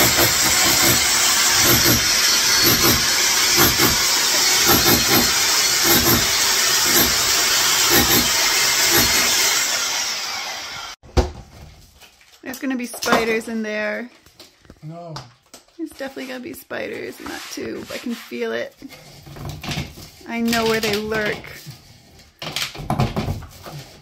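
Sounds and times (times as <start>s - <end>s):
power tool running: 0.0s - 11.0s.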